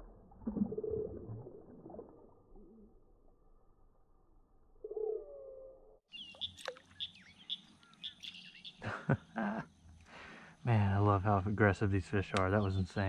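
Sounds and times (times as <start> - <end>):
small birds chirping: 6.1 - 13.0.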